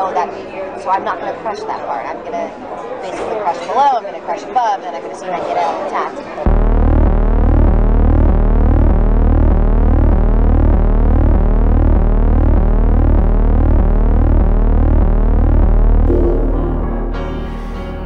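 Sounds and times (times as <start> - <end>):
deep throbbing drone: 6.5 - 18.0
rising gliding tones: 16.0 - 17.9.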